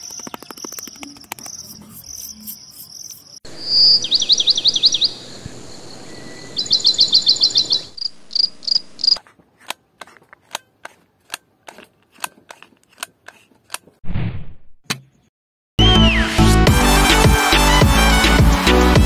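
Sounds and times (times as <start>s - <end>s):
glue gun trigger clicks: 9.6s - 13.9s.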